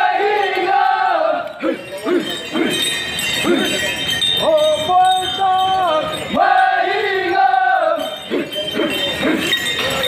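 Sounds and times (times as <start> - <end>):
group chanting: 0.0 - 2.8, 6.3 - 9.5.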